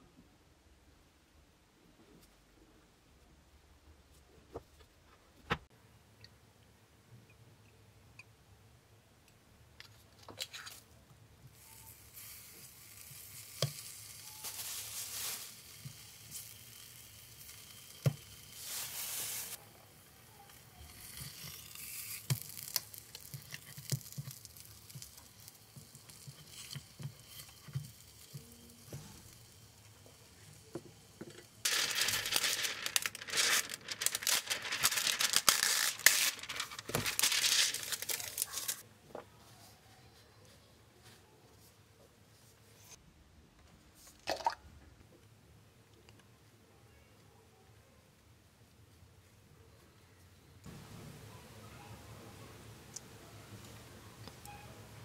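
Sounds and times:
meat sizzling in oil: 11.6 - 19.6, 20.5 - 30.4
paper crinkling: 14.2 - 15.8, 31.6 - 38.8.

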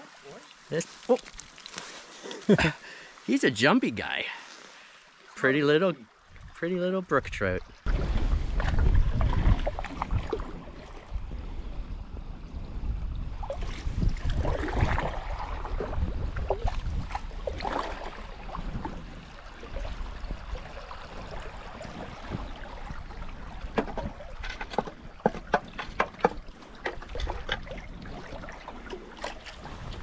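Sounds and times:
small sharp splashes and drips: 0.0 - 2.1
water lapping around canoe: 7.6 - 30.0
wind rumble on microphone: 7.6 - 30.0.

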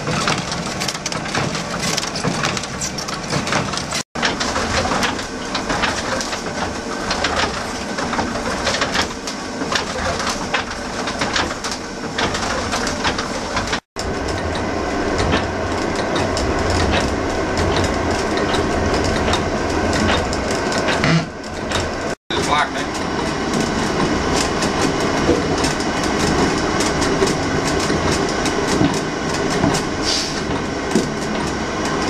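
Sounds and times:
wooden clattering and rattling: 0.0 - 14.6, 15.2 - 32.0
windmill machinery rumbling: 0.0 - 32.0.

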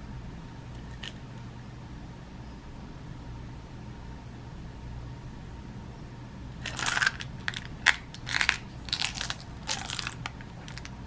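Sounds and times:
pellets rattling in metal tin: 6.6 - 10.9.

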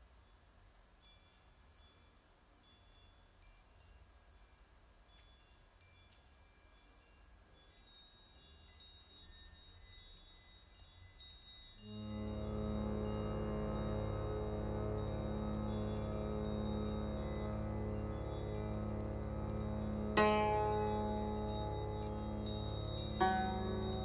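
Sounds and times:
high chiming music notes: 1.0 - 24.0
low steady hum: 11.8 - 24.0.

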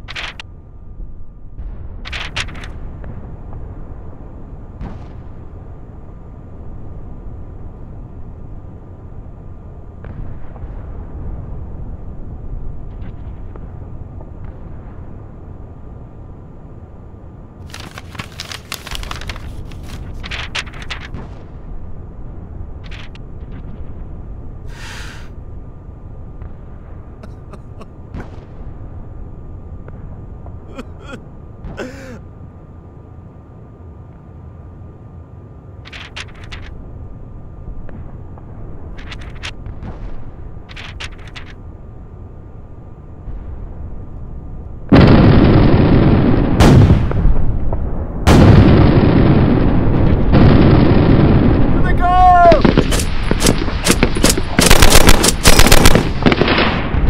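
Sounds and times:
steady low rumble: 0.0 - 57.0
sharp crack: 2.0 - 2.8, 39.0 - 41.6, 51.9 - 57.0
brief rustle: 17.6 - 21.1
sharp sniff: 24.7 - 25.3
man weeping quietly: 27.2 - 28.0, 30.6 - 32.4
artillery shells exploding: 44.9 - 57.0.

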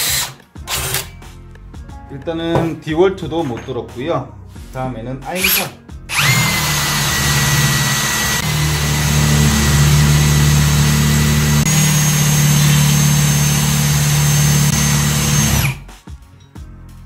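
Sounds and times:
hammer drill running under load: 5.4 - 15.9.

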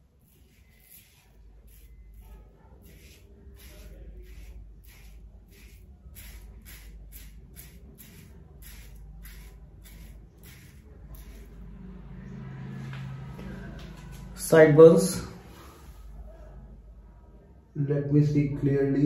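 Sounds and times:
razor scraping lathered stubble: 0.0 - 12.0.

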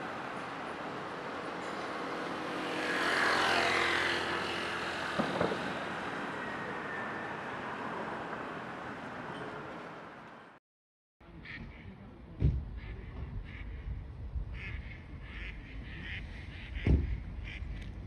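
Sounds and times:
road noise hiss: 0.0 - 10.6, 12.8 - 18.0
vehicle passing: 0.2 - 9.3.

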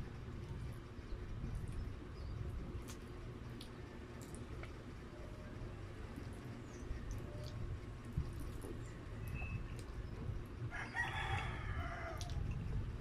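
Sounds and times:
rooster crowing: 10.7 - 12.4.

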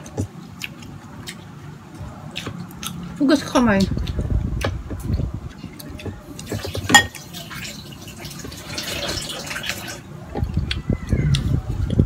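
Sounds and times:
water running into container: 6.5 - 10.0
glass clinking: 6.8 - 7.2.

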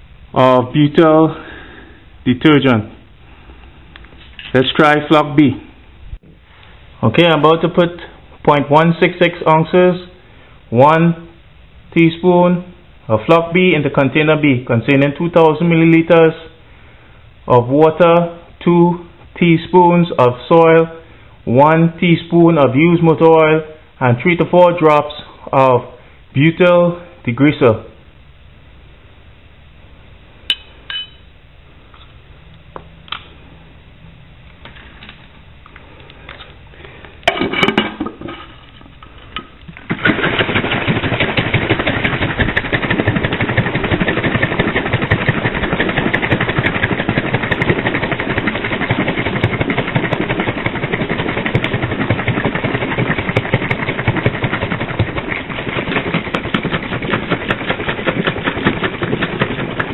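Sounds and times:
jar of liquid shaken rattling: 39.8 - 59.9.

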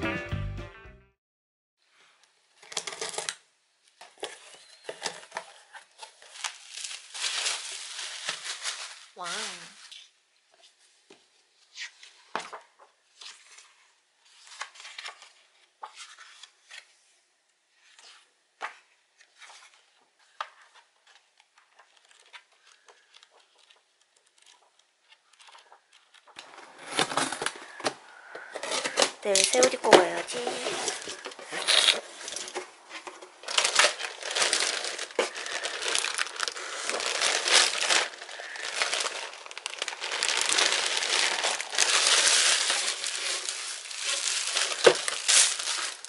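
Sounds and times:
bubble wrap crinkling: 2.6 - 3.4, 4.2 - 10.1, 20.5 - 46.0
book pages turning: 11.7 - 17.1, 17.7 - 46.0
tape ripping: 33.4 - 46.0.

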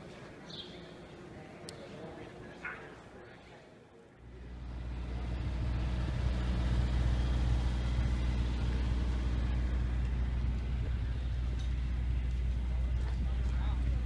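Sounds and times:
heavy vehicle idling: 4.2 - 14.0.

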